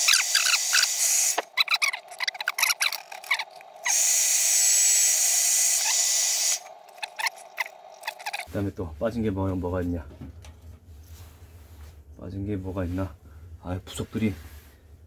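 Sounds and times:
wooden parts clicking and squeaking: 0:00.0 - 0:04.0, 0:06.8 - 0:08.5.

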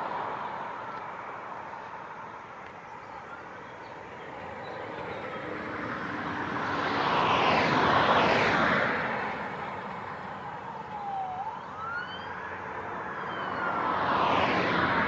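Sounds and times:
vehicle passing by: 0:04.3 - 0:15.0.

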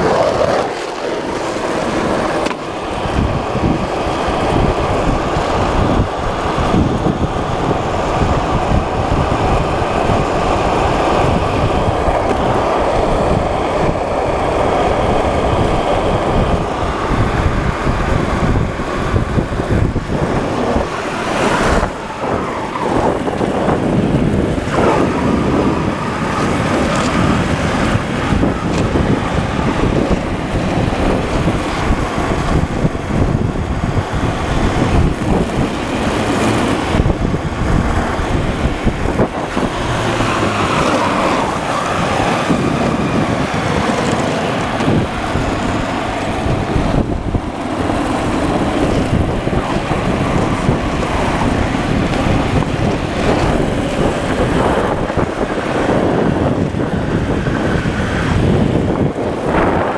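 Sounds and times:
board wheels rolling on asphalt: 0:00.0 - 0:59.9
wind buffeting microphone: 0:00.0 - 0:59.9.

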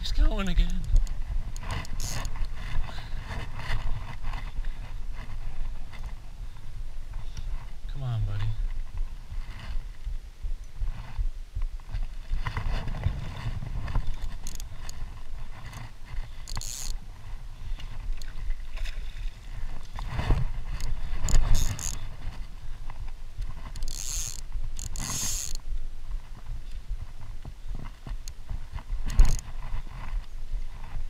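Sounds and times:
fishing line swishing: 0:17.8 - 0:22.2, 0:23.6 - 0:25.6.

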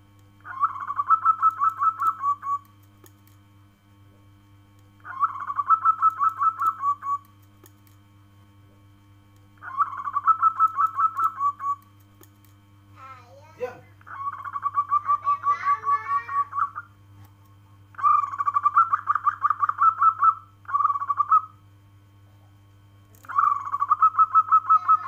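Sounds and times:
dove cooing: 0:00.4 - 0:02.7, 0:05.0 - 0:07.3, 0:09.6 - 0:11.8, 0:14.1 - 0:16.8, 0:18.0 - 0:21.5, 0:23.3 - 0:25.0.

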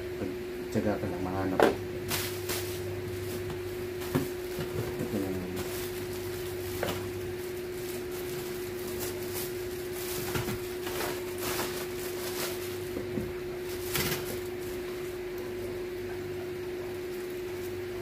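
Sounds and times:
steady low hum: 0:00.0 - 0:18.0
plastic wrapping crinkling: 0:02.1 - 0:15.1.

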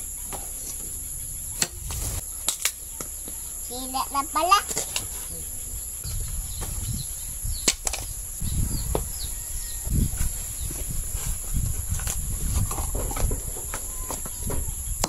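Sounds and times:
insect drone: 0:00.0 - 0:15.0
sharp knocks of coconut shells: 0:07.6 - 0:08.1.

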